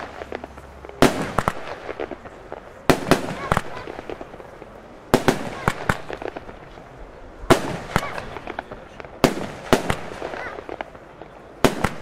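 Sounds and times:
firework bangs: 0.0s - 12.0s
small firework pops: 0.0s - 12.0s.

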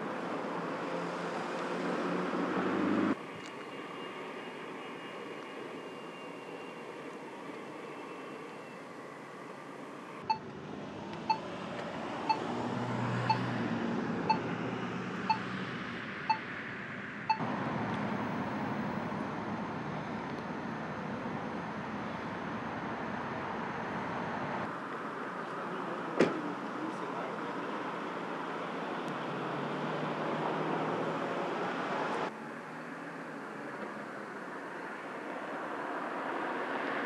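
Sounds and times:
street noise with low hum: 0.0s - 37.0s
crosswalk button beeps: 13.2s - 13.5s, 14.3s - 14.5s, 15.3s - 15.5s.

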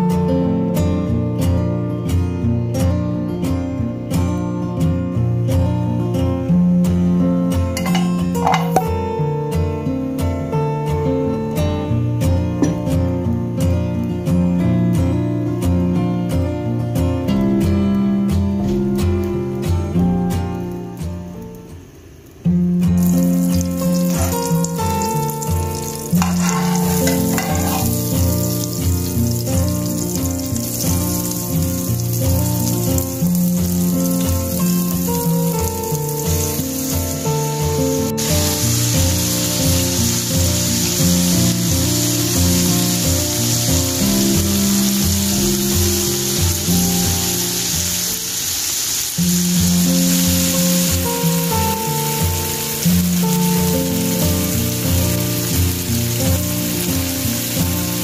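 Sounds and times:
background music with steady beat: 0.0s - 48.3s
butter sizzling in frying pan: 7.8s - 9.1s, 22.9s - 58.0s.

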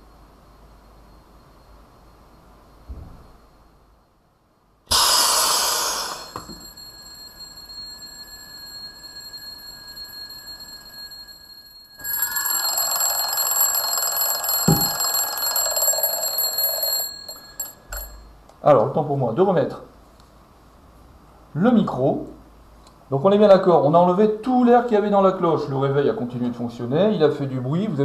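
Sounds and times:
thump: 2.9s - 3.2s
air hissing into a jar: 4.9s - 6.5s
alarm clock bells ringing: 5.8s - 18.3s.

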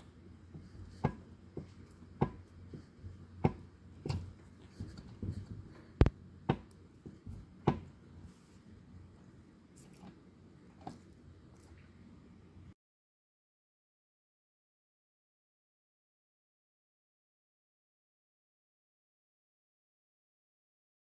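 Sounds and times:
low steady hum: 0.0s - 12.8s.

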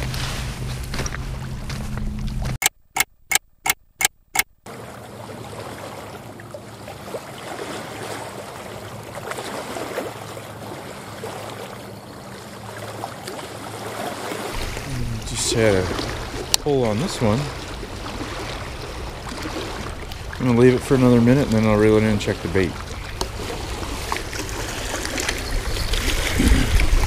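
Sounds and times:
wind: 0.0s - 27.0s
sharp clicks: 2.6s - 4.6s
waves lapping on rocky shore: 4.7s - 27.0s.

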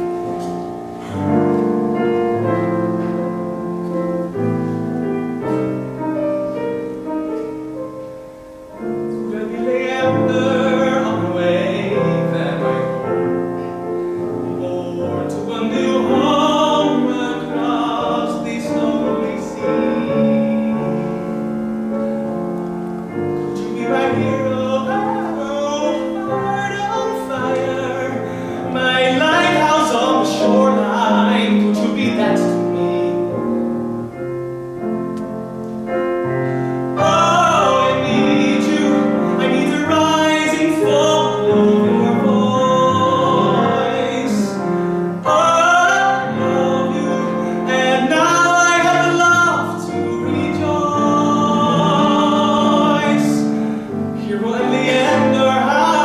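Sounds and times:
piano: 0.0s - 56.0s
man singing: 8.8s - 22.1s, 23.1s - 33.6s, 37.0s - 56.0s.

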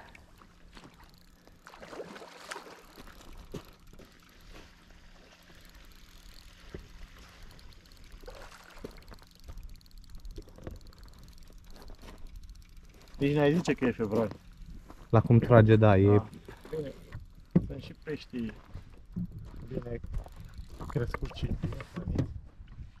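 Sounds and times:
water splashing and slapping: 1.6s - 5.5s.

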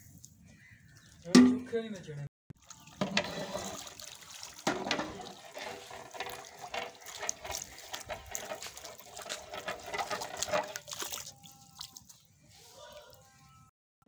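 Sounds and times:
liquid sloshing and splashing: 2.6s - 12.4s
ladle knocking and scraping pot: 3.0s - 3.8s, 4.6s - 10.9s.

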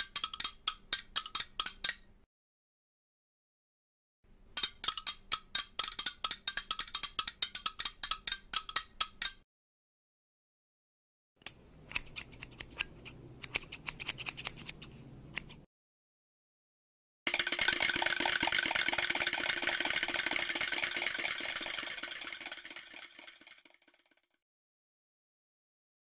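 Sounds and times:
scissors snipping quickly: 11.4s - 15.7s.

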